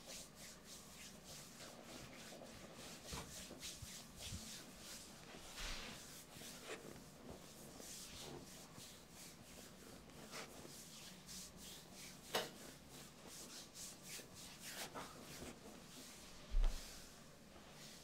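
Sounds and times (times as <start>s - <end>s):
hands rubbing skin: 0.0s - 18.0s.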